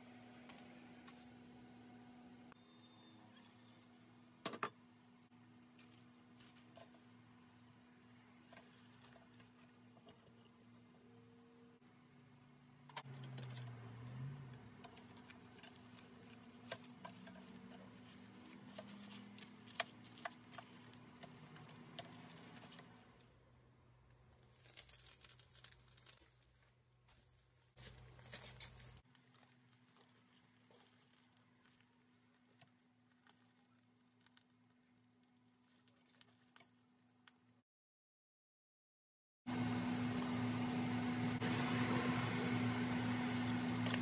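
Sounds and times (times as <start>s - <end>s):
small clicks and crackles: 12.9s - 23.3s, 24.0s - 37.6s
aluminium foil crinkling: 13.0s - 23.3s, 24.3s - 37.4s.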